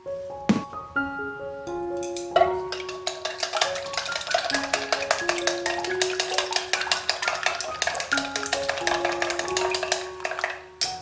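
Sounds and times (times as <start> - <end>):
background music: 0.0 - 11.0
chopsticks beating eggs in bowl: 2.7 - 11.0.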